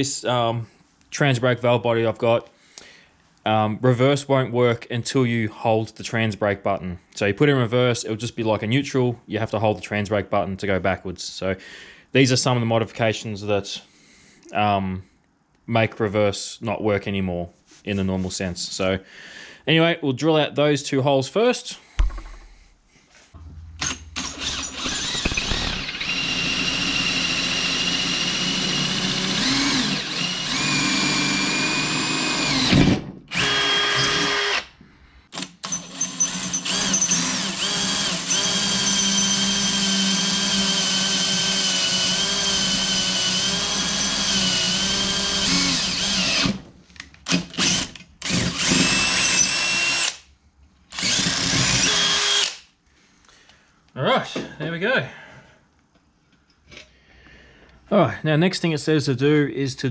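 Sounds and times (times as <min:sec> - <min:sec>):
cordless drill boring through metal: 0:23.8 - 0:34.7, 0:35.4 - 0:46.6, 0:47.3 - 0:50.2, 0:50.9 - 0:52.6.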